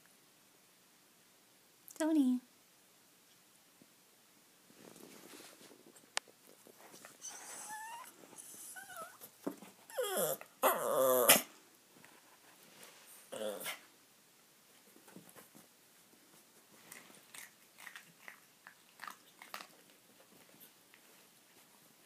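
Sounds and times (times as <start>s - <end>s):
dog whining and crying: 7.2s - 9.3s, 9.9s - 11.5s.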